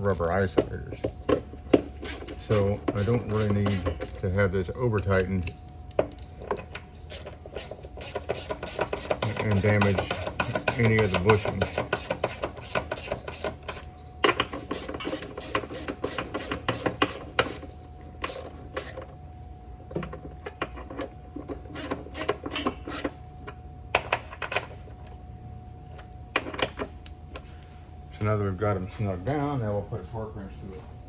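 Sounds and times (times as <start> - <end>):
hand ratchet clicking: 2.0 - 4.2, 7.1 - 13.9.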